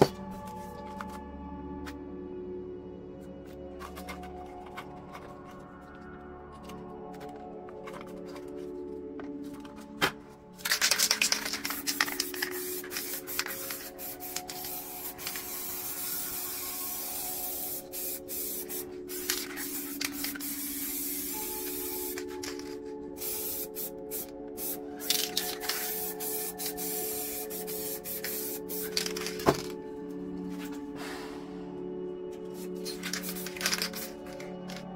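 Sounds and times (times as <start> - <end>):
low music drone: 0.0 - 23.2, 23.9 - 34.9
spray paint can hissing: 10.6 - 29.8, 32.6 - 34.8.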